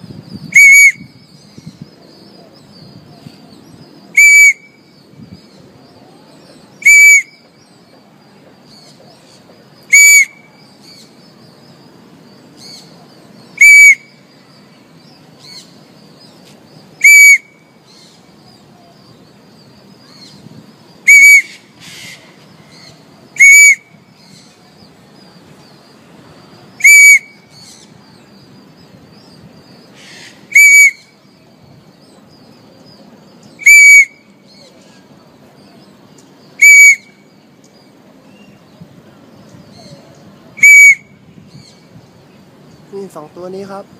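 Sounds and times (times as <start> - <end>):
parrot giving shrill calls: 0.5 - 1.1, 4.1 - 4.8, 6.8 - 7.4, 9.9 - 10.5, 13.6 - 14.2, 17.0 - 18.1, 21.0 - 24.4, 26.8 - 27.8, 30.0 - 31.2, 33.6 - 34.6, 36.5 - 37.3, 40.6 - 41.7.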